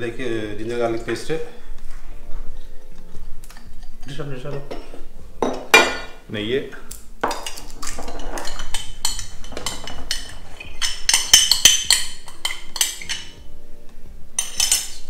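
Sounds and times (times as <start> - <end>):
spoon clinking against bowl: 7.2 - 13.4, 14.4 - 15.0.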